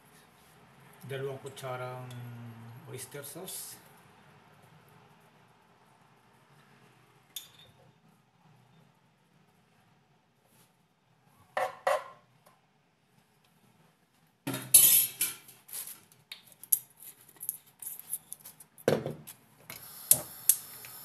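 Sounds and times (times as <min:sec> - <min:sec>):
kitchen utensils clattering: 0:14.5 - 0:15.5.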